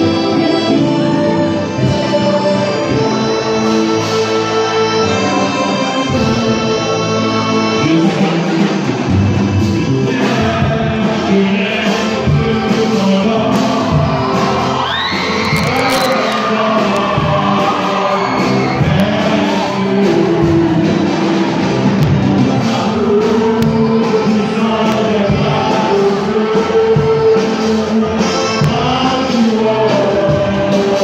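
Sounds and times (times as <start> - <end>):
male vocal group singing: 0.0 - 31.0
high voice sliding upward: 14.6 - 20.6.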